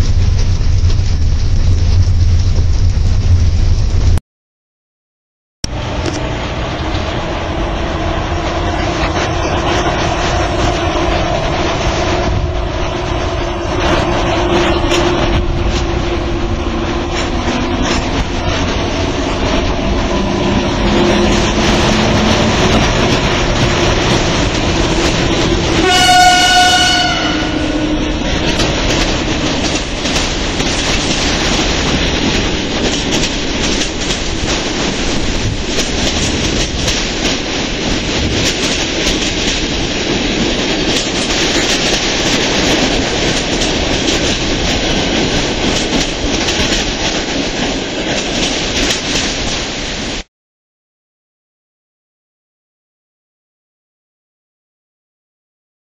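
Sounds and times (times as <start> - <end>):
electric locomotive passing: 5.6 - 50.2
wheels clicking over rail joints: 13.0 - 26.4, 27.9 - 49.7
train horn blast: 25.4 - 28.2.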